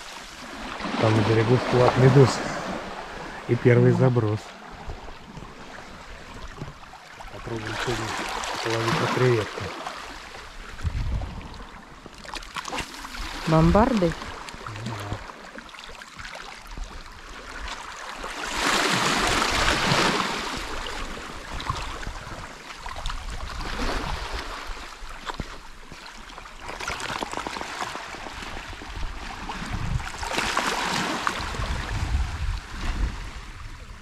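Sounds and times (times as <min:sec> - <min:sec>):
waves washing over pebbly shore: 0:18.3 - 0:22.2.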